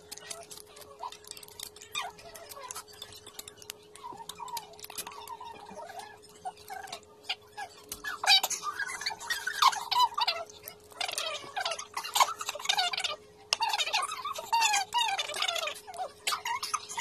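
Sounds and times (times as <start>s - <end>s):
fingers peeling shells: 0.0s - 7.0s
wet chewing sounds: 0.0s - 13.0s.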